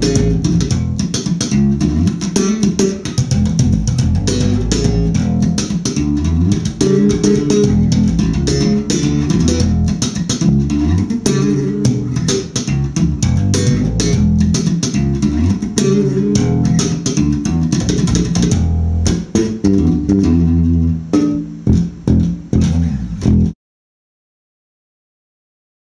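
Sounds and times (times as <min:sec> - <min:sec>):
slap bass guitar: 0:00.0 - 0:23.6.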